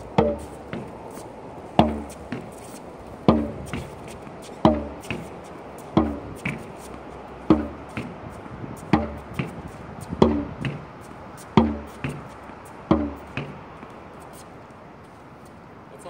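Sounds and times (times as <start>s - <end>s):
tennis ball hitting backboard: 0.0s - 1.0s, 1.8s - 2.6s, 3.2s - 8.2s, 8.8s - 10.9s, 11.5s - 13.9s
tennis ball hit by racquet: 0.0s - 1.2s, 1.8s - 14.0s.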